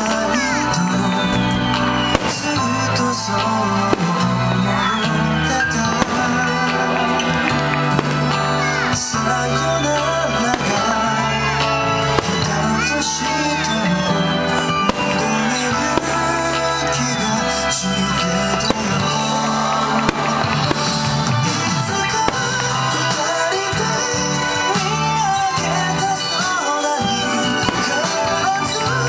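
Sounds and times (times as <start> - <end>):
fireworks bursting: 0.0 - 29.0
music with long held tones: 0.0 - 29.0.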